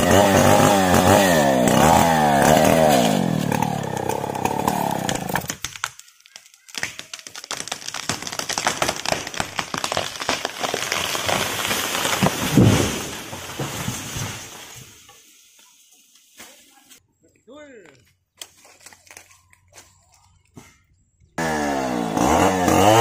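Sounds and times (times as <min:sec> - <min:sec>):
chainsaw cutting wood: 0:00.0 - 0:14.6, 0:21.4 - 0:23.0
tree hitting the ground: 0:00.1 - 0:15.1
tree crashing through branches: 0:00.1 - 0:15.2.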